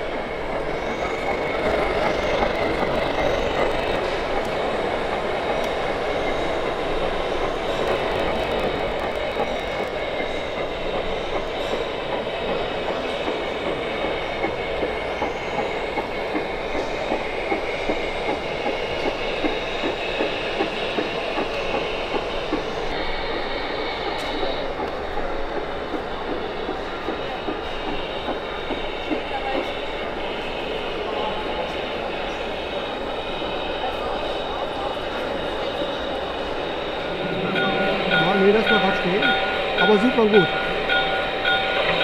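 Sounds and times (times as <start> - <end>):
model train rattling on track: 0.0 - 42.0
thin high steady tones: 36.1 - 42.0.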